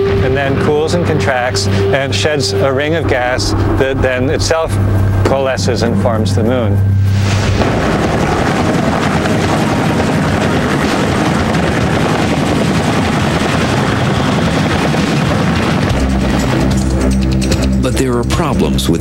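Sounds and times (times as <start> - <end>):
helicopter rushing noise: 0.0 - 19.0.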